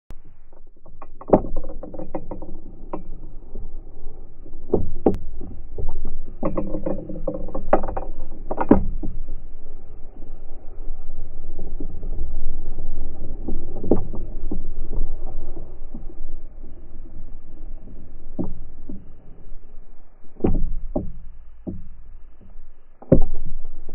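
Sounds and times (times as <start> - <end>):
low thuds and knocks: 0.6 - 9.3, 13.4 - 23.9
steady low rumble: 7.4 - 23.9.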